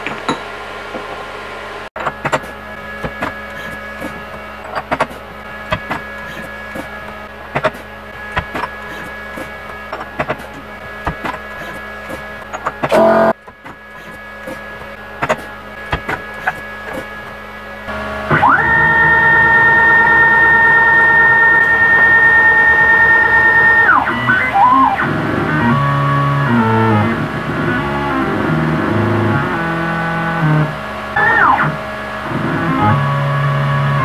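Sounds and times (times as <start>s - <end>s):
spindle whine: 0.0s - 34.0s.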